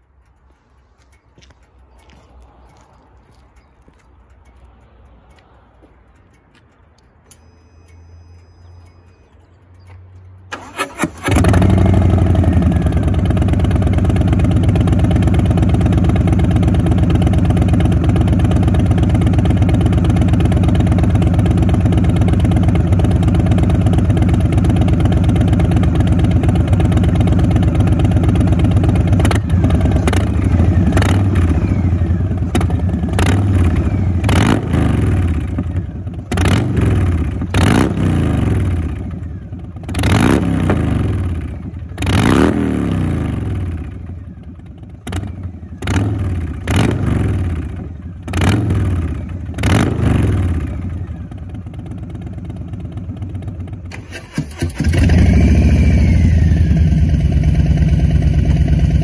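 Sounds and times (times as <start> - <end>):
motorcycle starter cranking: 10.5 - 12.2, 53.8 - 55.2
motorcycle engine revving: 10.5 - 59.0
motorcycle engine idling: 10.6 - 59.0.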